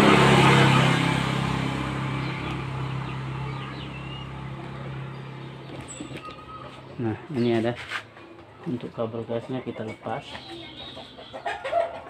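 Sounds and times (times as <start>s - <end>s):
passing vehicle engine: 0.0s - 9.0s.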